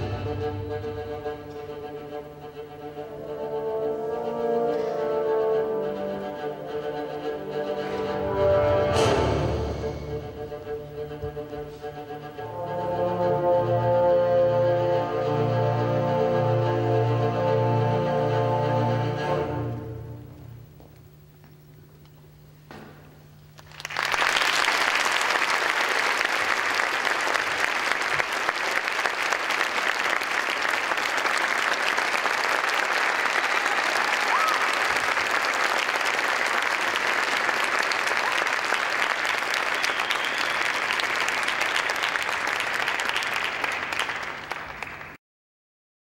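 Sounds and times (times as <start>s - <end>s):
audience applauding: 23.6s - 45.2s.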